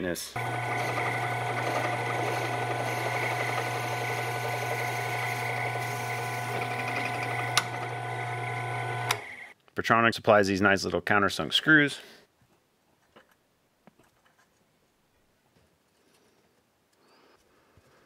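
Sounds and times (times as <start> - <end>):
drill press motor hum: 0.4 - 9.5.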